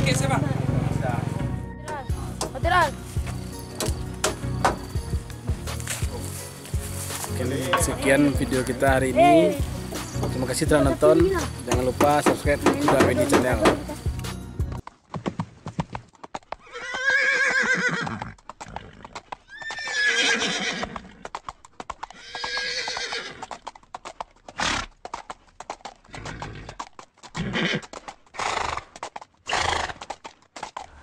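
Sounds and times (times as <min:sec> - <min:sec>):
clatter of hoofbeats: 0:02.3 - 0:31.0
horse whinnying: 0:16.6 - 0:21.3, 0:22.1 - 0:23.6, 0:26.1 - 0:30.0.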